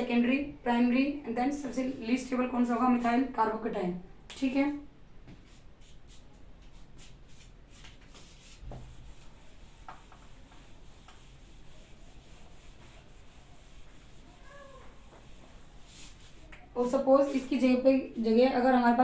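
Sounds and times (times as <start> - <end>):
duster rubbing whiteboard: 5.4 - 17.8.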